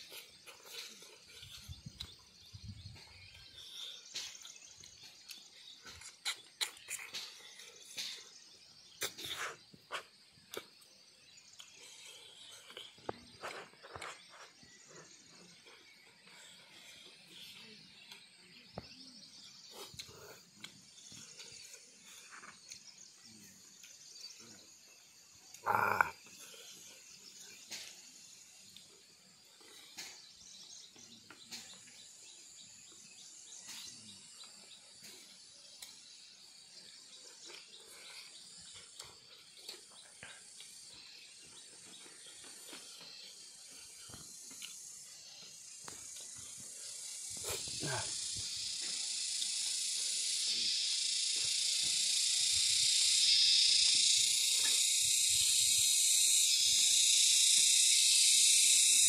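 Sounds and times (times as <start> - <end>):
mouth clicks and chewing: 3.0 - 8.4, 9.0 - 14.6, 19.7 - 22.9, 37.2 - 41.0, 44.0 - 45.0
high insect buzz: 3.9 - 15.6, 18.8 - 28.7, 35.0 - 59.0.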